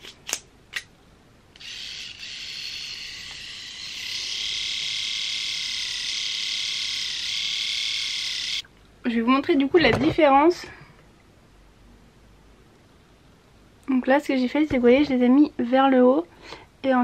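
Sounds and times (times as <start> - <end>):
electric trimmer buzzing: 1.6 - 8.6.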